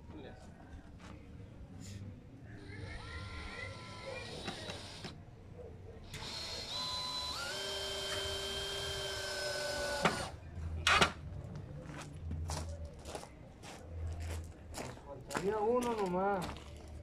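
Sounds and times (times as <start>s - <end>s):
cordless drill whining: 3.0s - 5.2s, 6.1s - 10.3s.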